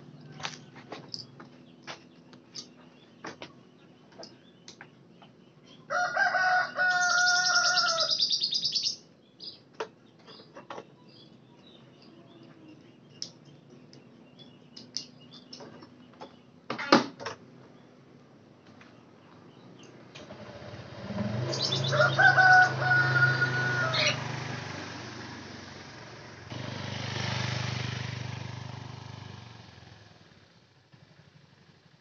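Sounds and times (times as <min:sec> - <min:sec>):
small birds chirping: 0:00.0 - 0:24.3
rooster crowing: 0:05.9 - 0:08.4, 0:21.6 - 0:24.3.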